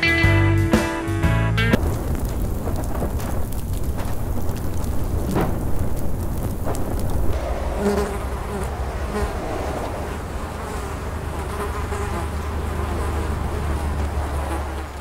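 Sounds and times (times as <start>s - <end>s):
swarm of flies buzzing: 7.7s - 15.0s.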